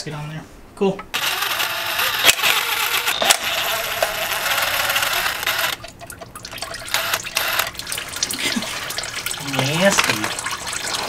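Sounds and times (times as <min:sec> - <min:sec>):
fluid pouring into drain pan: 0:03.7 - 0:11.0.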